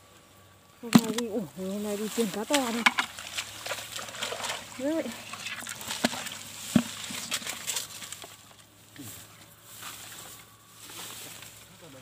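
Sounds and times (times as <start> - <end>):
fish knocking against plastic bucket: 0.9 - 1.3, 2.4 - 8.4
light scraping and rustling: 0.9 - 12.0.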